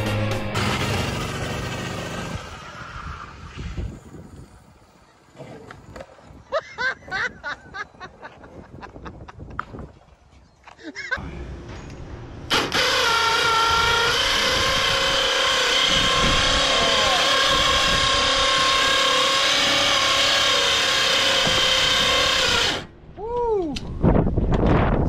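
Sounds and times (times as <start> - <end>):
power tool motor running: 12.5 - 22.9.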